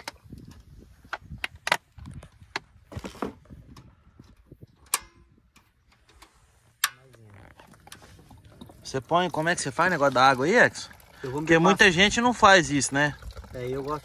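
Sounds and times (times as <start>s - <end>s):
camp cooking gear clicking: 0.0s - 2.8s.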